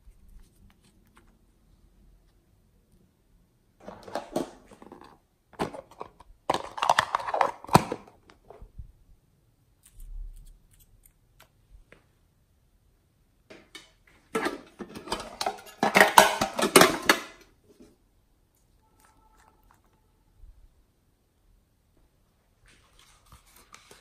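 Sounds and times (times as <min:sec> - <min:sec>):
metal tin clattering and scraping: 0:14.3 - 0:17.4.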